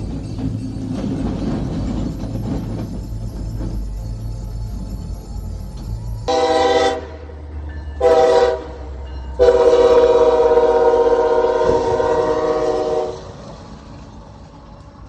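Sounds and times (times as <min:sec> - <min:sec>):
locomotive air horn blasts: 0:06.3 - 0:07.4, 0:08.0 - 0:13.4.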